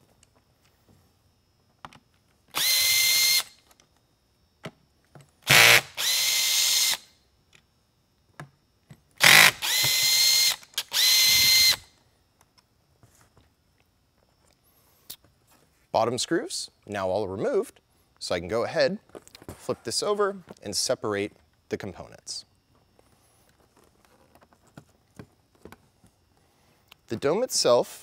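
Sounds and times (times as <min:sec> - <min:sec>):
cordless drill whining: 0:02.5 - 0:03.6, 0:05.4 - 0:07.1, 0:09.2 - 0:11.9.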